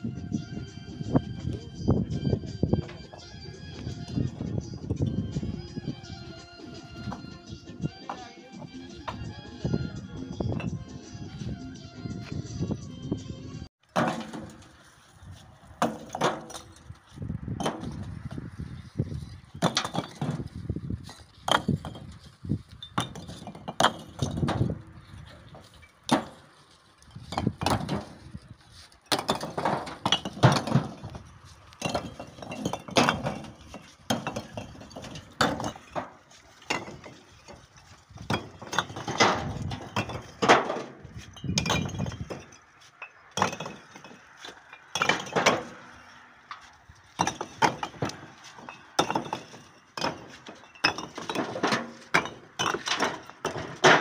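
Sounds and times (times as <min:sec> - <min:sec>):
bricks clinking and clattering: 0:06.2 - 0:09.4, 0:13.9 - 0:14.8, 0:15.8 - 0:17.0, 0:17.6 - 0:18.4, 0:19.2 - 0:54.0.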